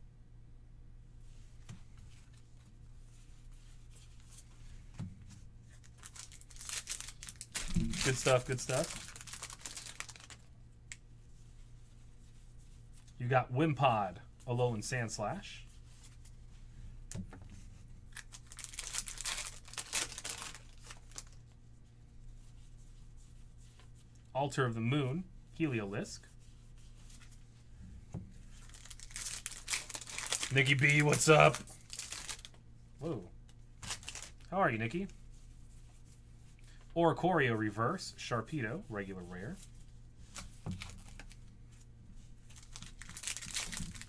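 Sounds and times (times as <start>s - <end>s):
faint low hum: 0.0s - 44.0s
foil wrapper crinkling: 5.7s - 10.5s, 18.1s - 21.4s, 28.5s - 32.5s, 33.8s - 34.5s, 40.7s - 41.5s, 42.4s - 44.0s.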